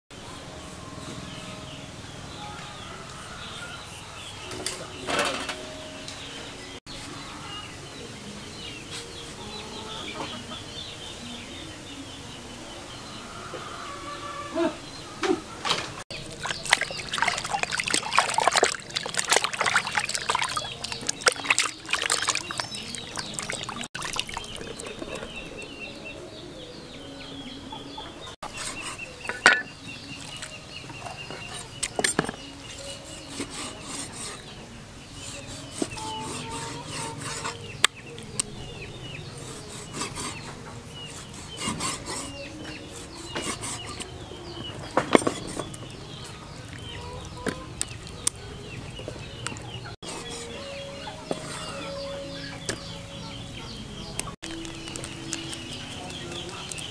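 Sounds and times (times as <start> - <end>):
small birds calling: 0.2 - 56.9
chickens clucking: 8.9 - 10.9, 27.4 - 56.9
water splashing in a plastic basin: 16.2 - 25.4.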